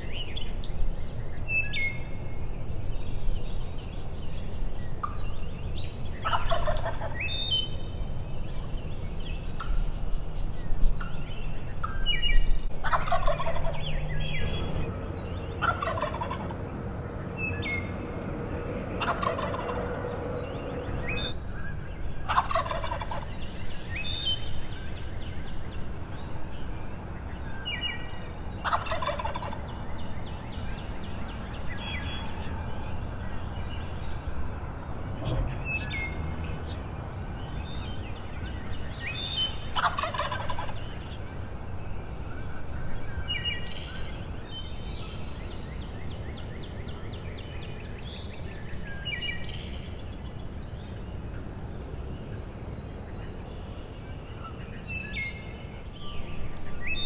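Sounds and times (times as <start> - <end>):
songbirds chirping: 0.0 - 57.0
turkeys gobbling: 6.2 - 7.3, 12.8 - 14.9, 15.6 - 16.6, 18.9 - 20.2, 22.2 - 23.3, 28.6 - 29.7, 39.4 - 41.2.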